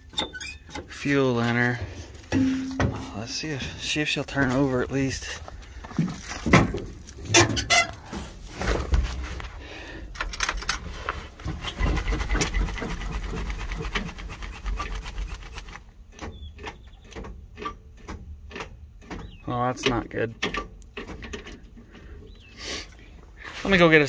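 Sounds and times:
knocks and rubbing: 2.3s - 3.8s, 11.0s - 19.4s
starter clicking with low rumble: 3.2s - 22.5s.

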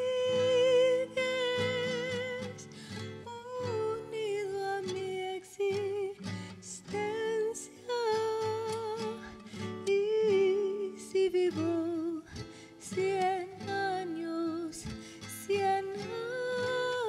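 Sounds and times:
strummed classical guitar: 0.0s - 17.0s
woman singing with vibrato: 0.0s - 17.0s.

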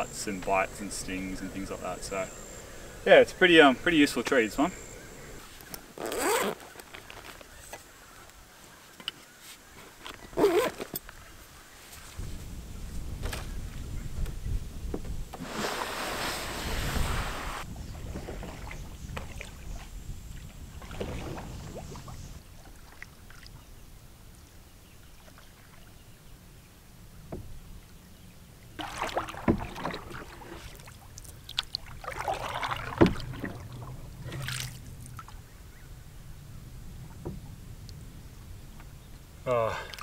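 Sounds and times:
canoe scraping and splashing: 0.0s - 7.8s, 15.3s - 22.9s, 28.8s - 35.4s
paddle strokes in water: 15.3s - 23.7s, 28.8s - 35.4s.

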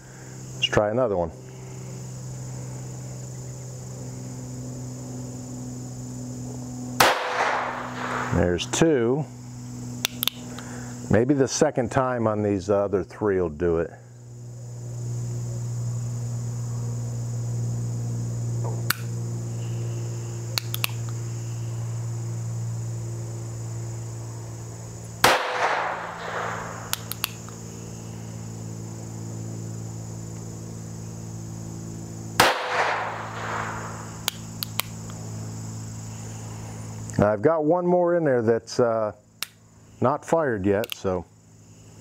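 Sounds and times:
crickets chirping: 0.0s - 42.0s
revolver shots: 7.0s - 8.4s, 25.2s - 27.5s, 32.4s - 34.2s
revolver hammer clicks: 10.0s - 10.6s, 20.6s - 21.2s, 26.2s - 27.6s, 34.2s - 35.2s.

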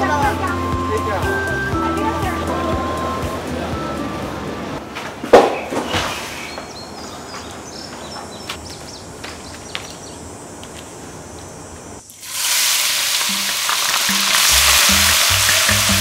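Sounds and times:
food sizzling in hot oil: 12.1s - 16.0s.

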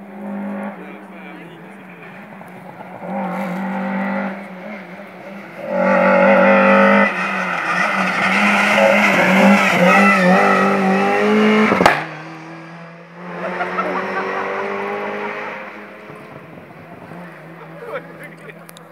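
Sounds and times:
rally car engine revving: 0.0s - 18.9s.

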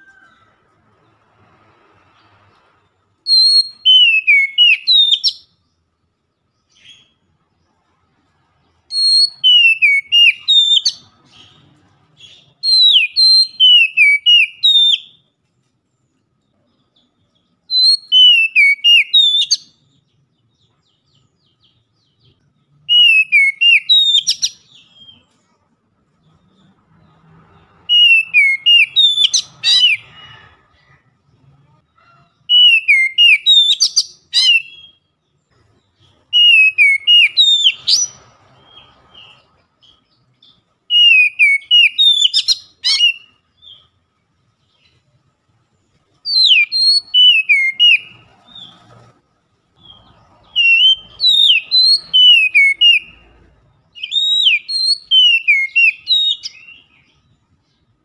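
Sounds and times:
bird singing whistled phrases: 3.2s - 5.6s, 8.9s - 11.1s, 12.2s - 15.2s, 17.7s - 19.8s, 22.9s - 25.3s, 27.8s - 30.2s, 32.5s - 35.1s, 36.3s - 39.4s, 40.4s - 43.8s, 46.3s - 48.7s, 49.8s - 53.4s, 54.0s - 57.3s.

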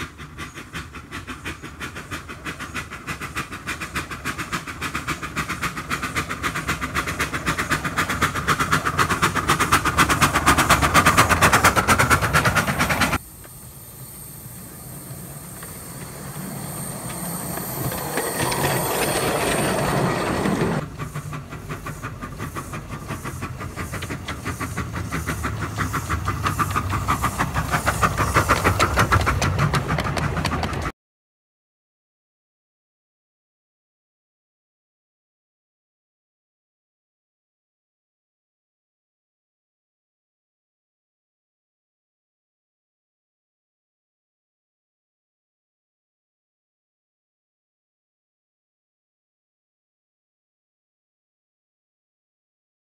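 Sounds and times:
wheels clattering on rails: 0.0s - 13.2s, 14.5s - 30.9s
steam locomotive beats: 0.0s - 30.9s.

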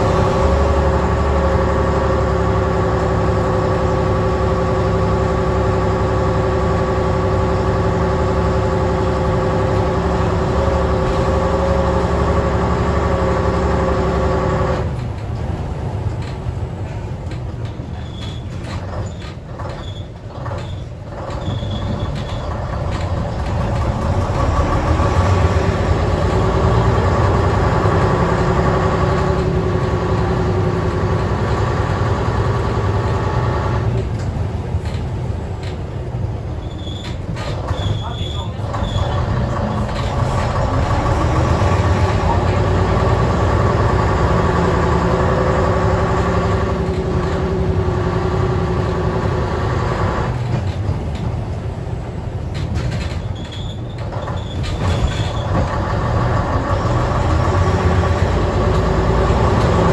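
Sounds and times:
bus diesel engine running: 0.0s - 59.9s
light rattles and clicks: 34.0s - 36.0s.

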